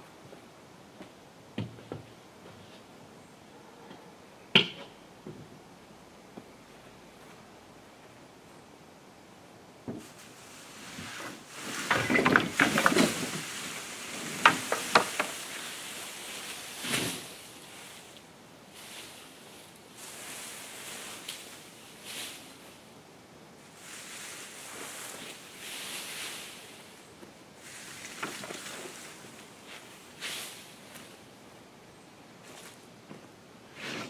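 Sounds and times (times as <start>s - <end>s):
rustling foliage: 0.0s - 34.0s.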